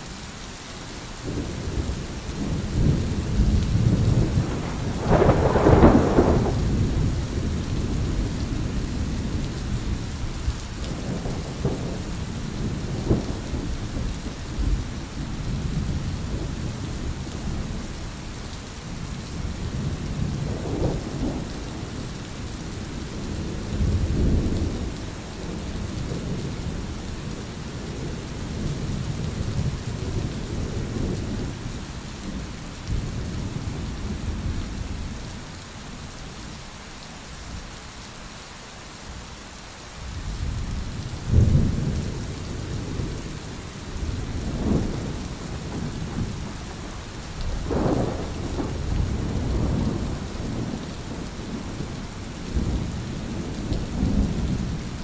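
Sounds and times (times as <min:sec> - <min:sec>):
steady rain: 0:00.0 - 0:55.0
thunder rumbling: 0:01.2 - 0:17.9, 0:19.2 - 0:35.2, 0:40.3 - 0:55.0
loud thunder clap: 0:03.5 - 0:07.1, 0:47.6 - 0:50.8.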